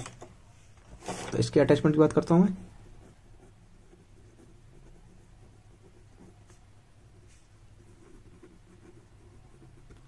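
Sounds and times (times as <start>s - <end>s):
pen scratching on paper: 2.6s - 10.0s.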